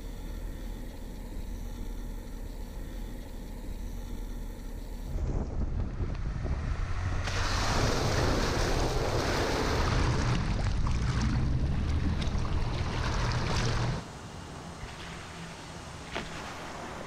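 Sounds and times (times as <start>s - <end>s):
low engine rumble: 0.0s - 16.0s
water splashing around wheels: 5.1s - 17.0s.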